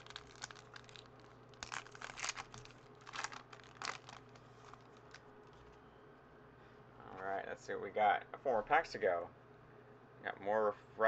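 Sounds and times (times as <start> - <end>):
foil wrapper crinkling and tearing: 0.0 - 5.6.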